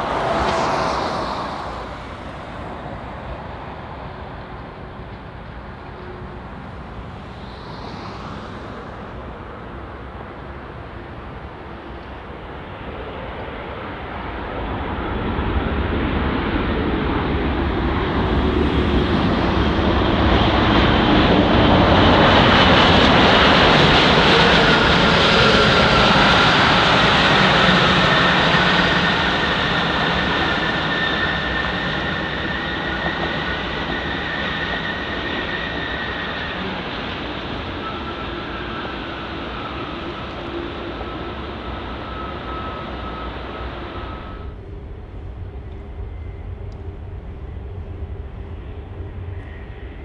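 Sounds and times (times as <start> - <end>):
rushing air: 0.0 - 4.4, 6.4 - 10.9, 15.6 - 24.1
jet engines roaring: 0.0 - 50.0.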